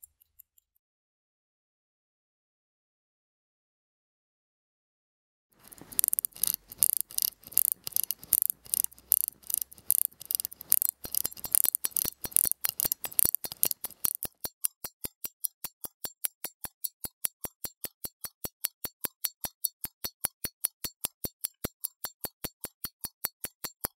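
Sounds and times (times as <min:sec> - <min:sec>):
pocket watch ticking: 0:00.0 - 0:00.8, 0:05.6 - 0:23.9.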